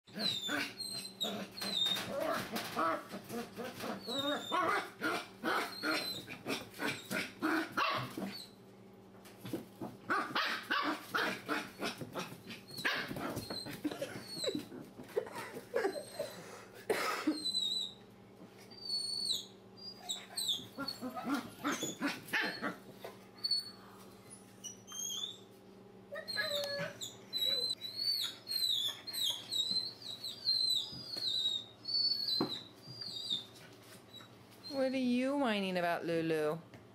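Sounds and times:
puppies barking and yipping: 0.1 - 8.6, 10.1 - 16.5, 17.2 - 18.0, 18.8 - 23.8, 26.1 - 34.8
puppies whining and squealing: 0.1 - 8.6, 10.3 - 35.0.

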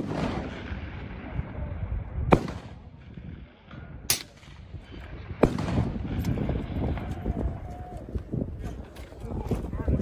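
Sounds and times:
loud rifle shots: 0.0 - 1.0, 2.3 - 3.0, 5.4 - 6.2.

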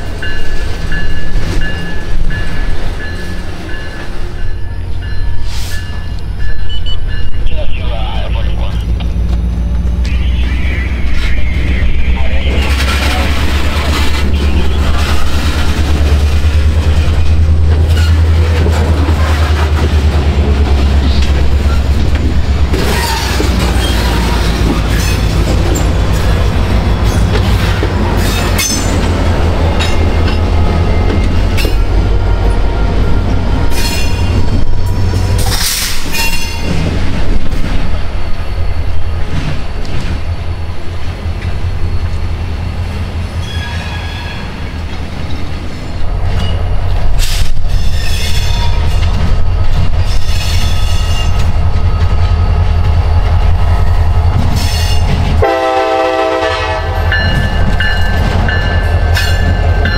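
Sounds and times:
train rumbling past: 0.0 - 59.9
train horn blast: 55.4 - 57.4.

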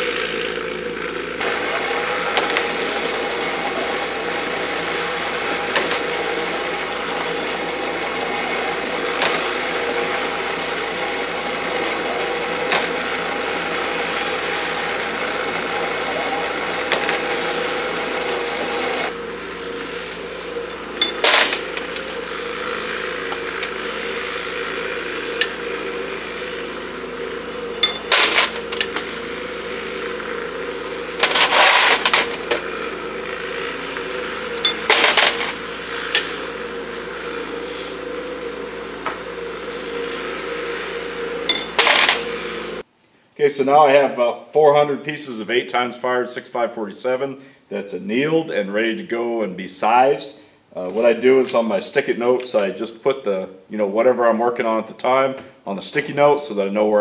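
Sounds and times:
electric machine running: 0.0 - 42.9
propane torches hissing: 0.0 - 42.9.

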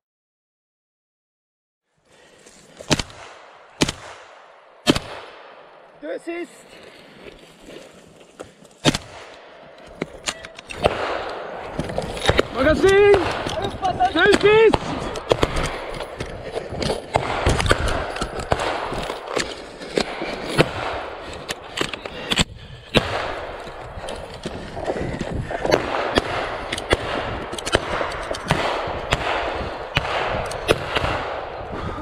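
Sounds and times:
rifle shots: 2.9 - 5.9, 8.8 - 24.2, 25.6 - 31.7
rustling through undergrowth: 6.4 - 9.3.

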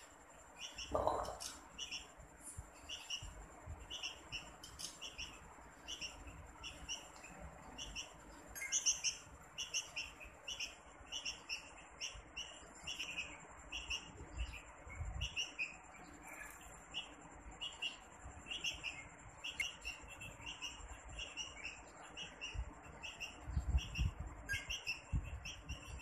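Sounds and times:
chick begging chirps: 0.6 - 2.1.

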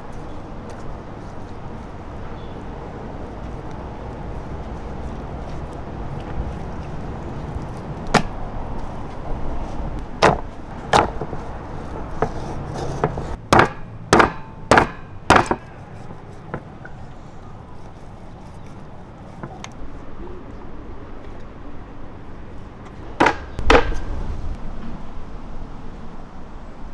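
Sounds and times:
knife chopping on wooden board: 12.1 - 15.7.

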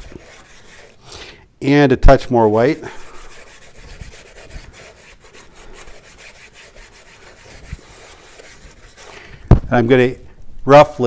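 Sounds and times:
paintbrush scrubbing in plastic palette: 0.0 - 1.3, 2.4 - 9.5.

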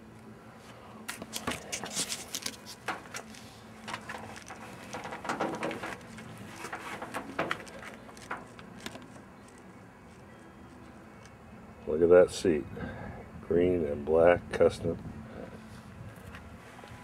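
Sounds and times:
handheld camera handling noise: 7.5 - 10.2.

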